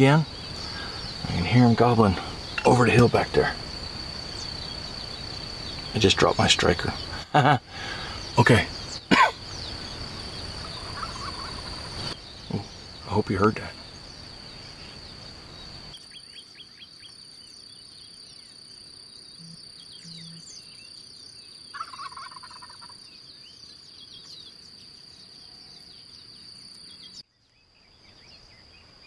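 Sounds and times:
small bird chirps: 7.8 - 15.0, 15.6 - 28.9
turkey gobbling: 10.6 - 12.2, 21.7 - 22.9.

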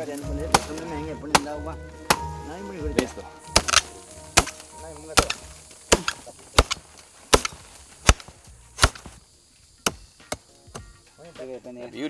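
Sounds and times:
machete chopping woody vine: 0.0 - 11.0.

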